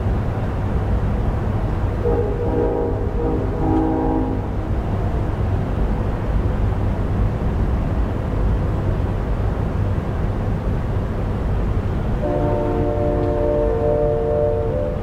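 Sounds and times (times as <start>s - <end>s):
low rumbling background noise: 0.0s - 15.0s
distant train horn chord: 2.0s - 4.8s, 12.2s - 15.0s.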